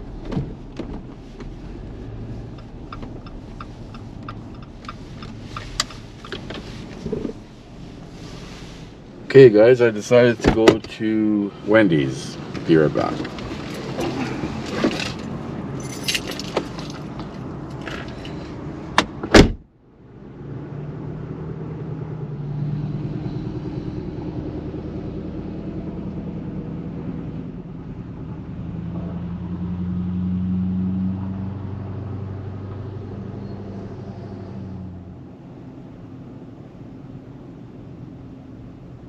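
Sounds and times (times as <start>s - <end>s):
steady low cab hum: 0.0s - 39.0s
car door clicks and rattles: 18.9s - 19.7s
car door shutting knocks: 19.0s - 19.6s.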